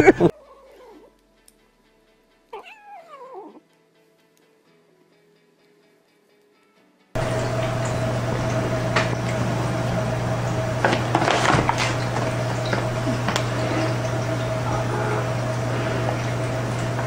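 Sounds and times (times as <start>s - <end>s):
mechanical hum and hiss: 7.2s - 17.0s
steady mid-pitched tone: 14.3s - 17.0s.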